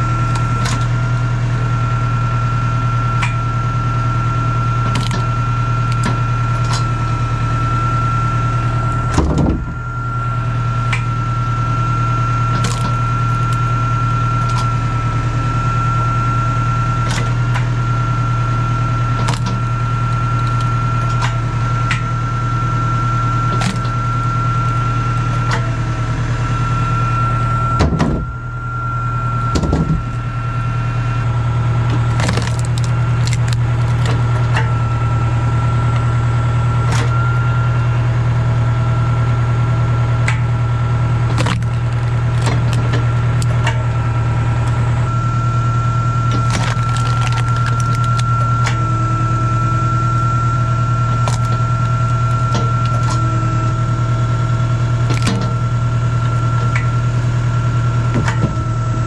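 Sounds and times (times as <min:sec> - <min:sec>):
high whine: 0:00.0 - 0:59.0
tractor engine running: 0:00.0 - 0:59.0
logs knocking and cracking: 0:04.8 - 0:05.3, 0:12.5 - 0:13.6, 0:19.2 - 0:22.0, 0:31.9 - 0:34.7, 0:41.3 - 0:43.8, 0:46.3 - 0:48.8, 0:51.1 - 0:53.2, 0:55.1 - 0:55.6.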